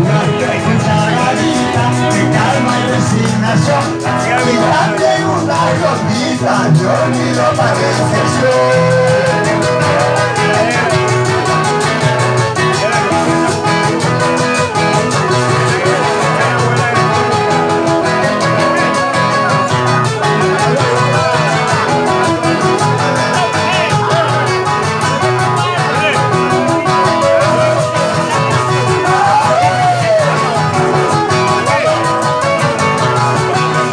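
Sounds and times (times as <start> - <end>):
acoustic guitars strumming: 0.0 - 33.9
shaken percussion: 0.0 - 33.9.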